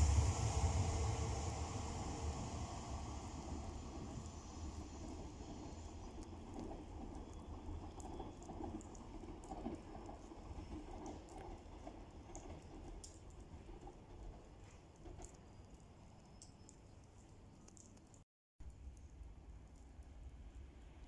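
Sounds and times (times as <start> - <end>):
faint train rumble: 0.0 - 16.8
small ticks: 5.0 - 21.0.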